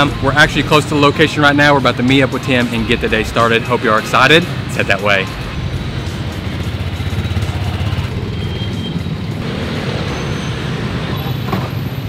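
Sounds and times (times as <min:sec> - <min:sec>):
street traffic: 0:00.0 - 0:12.0
motorbike engine close by: 0:05.4 - 0:11.8.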